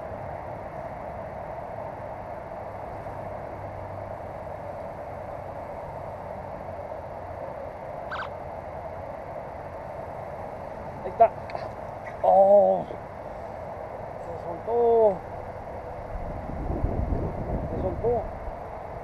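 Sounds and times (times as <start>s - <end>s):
outdoor background hum: 0.0s - 19.0s
short chirp: 8.1s - 8.4s.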